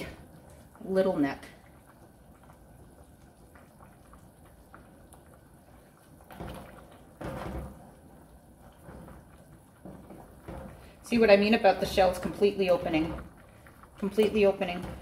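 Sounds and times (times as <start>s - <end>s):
wooden spoon stirring clams in sauce: 6.4s - 15.0s.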